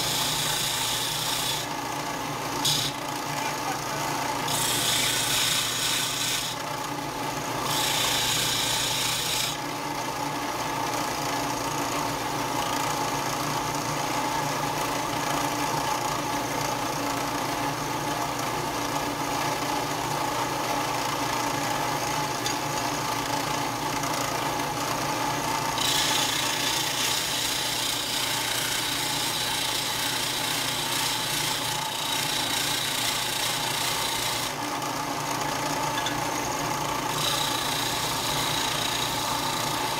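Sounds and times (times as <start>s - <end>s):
disc sander running: 0.0s - 39.9s
metal grinding against sander disc: 37.1s - 39.9s.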